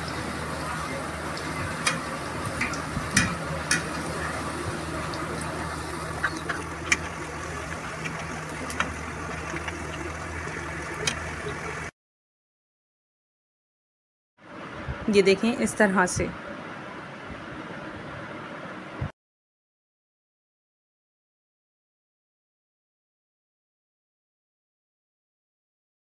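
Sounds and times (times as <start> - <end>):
hot oil sizzling: 0.0 - 11.9
low steady hum: 0.0 - 11.9
metal tongs clicking on pan: 1.8 - 4.0.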